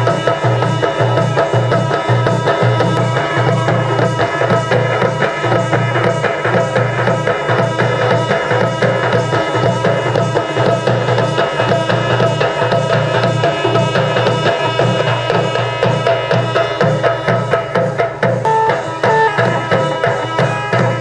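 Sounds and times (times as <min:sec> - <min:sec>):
drums beating fast rhythm: 0:00.0 - 0:21.0
melody instrument held notes: 0:18.4 - 0:21.0.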